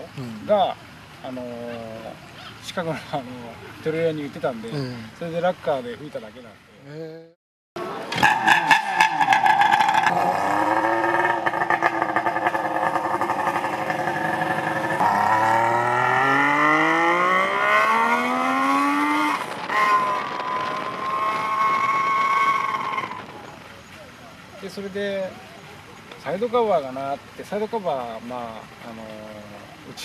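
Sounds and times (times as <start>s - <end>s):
motorcycle engine revving: 7.8s - 24.5s.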